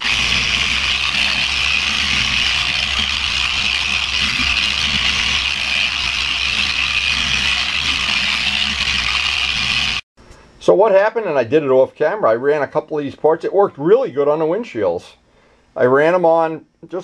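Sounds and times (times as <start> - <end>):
electric polisher high-pitched hiss: 0.0 - 10.0.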